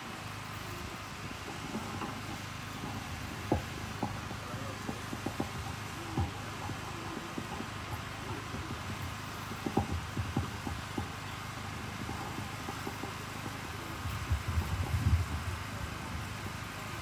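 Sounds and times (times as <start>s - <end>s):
outdoor background hiss: 0.0s - 17.0s
low rumbling thumps: 14.0s - 16.4s.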